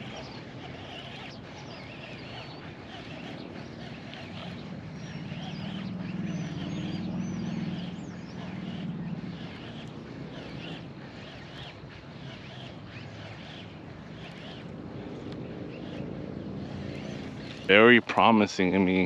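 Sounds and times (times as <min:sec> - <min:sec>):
low motor drone: 0:00.0 - 0:19.0
outdoor background noise: 0:00.0 - 0:19.0
small birds chirping: 0:00.0 - 0:19.0.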